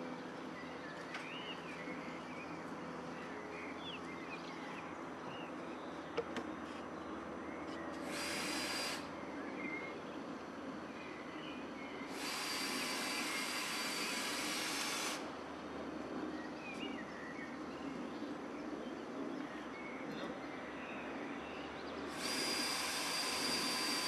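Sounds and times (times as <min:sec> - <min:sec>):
power tool hissing whir: 0:08.0 - 0:09.1, 0:12.1 - 0:15.3, 0:22.1 - 0:24.0.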